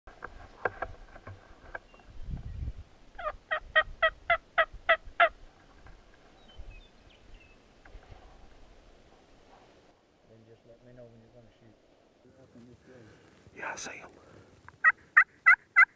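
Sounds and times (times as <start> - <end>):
turkey yelping: 3.2 - 5.4, 14.8 - 15.9.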